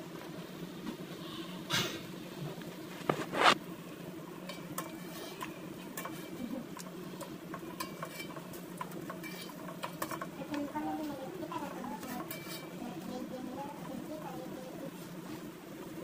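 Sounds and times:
metal spoon clinking against pot: 4.5s - 10.8s, 12.0s - 12.8s.

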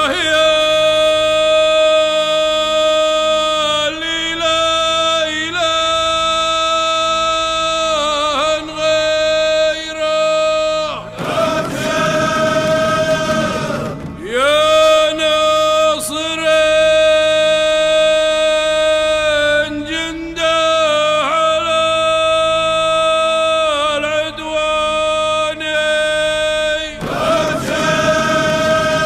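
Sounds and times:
person chanting long held notes: 0.0s - 29.0s
choir singing: 11.0s - 16.3s, 26.8s - 29.0s.

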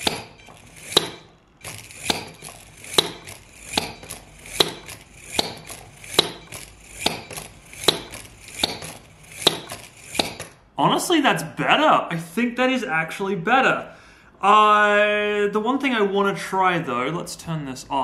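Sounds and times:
toy hammer clacking on table: 0.0s - 10.6s.

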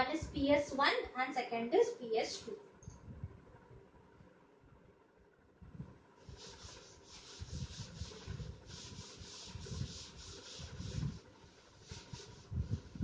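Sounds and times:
cloth duster rubbing chalkboard: 6.2s - 13.0s.

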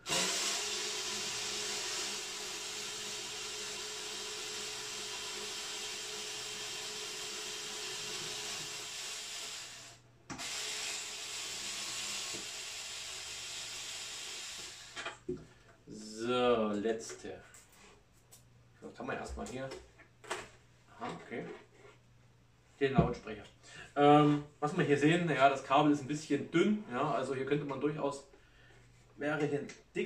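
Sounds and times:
electric screwdriver whining: 0.0s - 15.2s.

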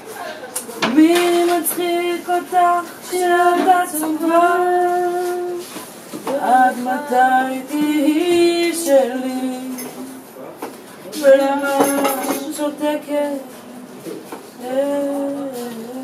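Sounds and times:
woman singing: 0.8s - 5.7s, 6.3s - 10.2s, 11.2s - 13.9s, 14.6s - 16.0s.

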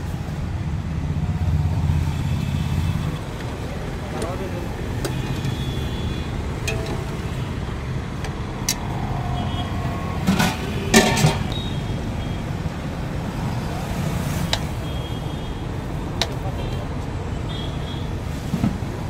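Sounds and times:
road traffic rumble: 0.0s - 19.0s
metal spoon clinking against pots: 6.6s - 7.6s, 10.3s - 11.6s.

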